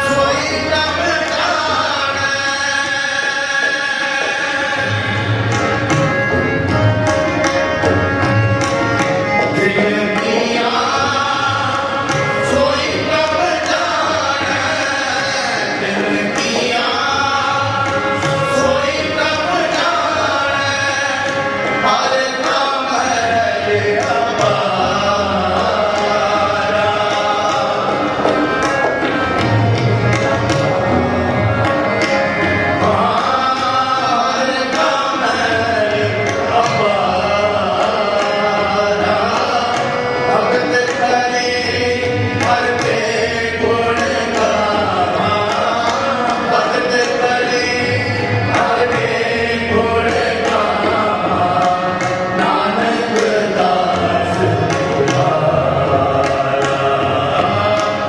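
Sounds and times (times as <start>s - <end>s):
harmonium: 0.0s - 58.0s
tabla beat: 0.0s - 58.0s
men singing a hymn: 9.6s - 28.5s, 32.8s - 58.0s.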